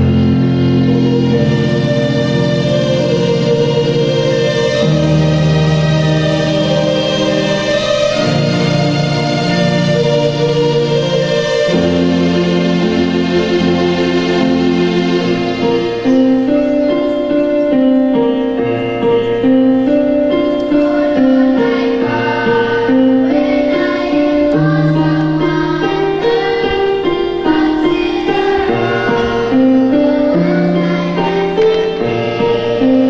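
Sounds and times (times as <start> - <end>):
children's choir singing: 0.0 - 33.0
electronic keyboard accompaniment: 0.0 - 33.0.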